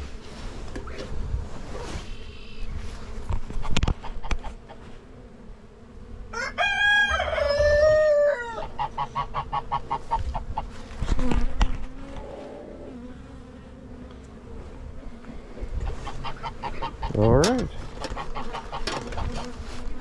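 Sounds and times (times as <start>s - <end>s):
rooster crowing: 6.3s - 9.0s.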